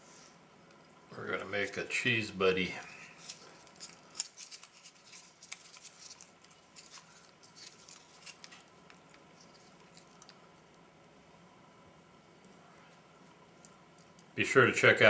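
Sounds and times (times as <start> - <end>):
food packaging crinkling and clicking: 2.8 - 10.8.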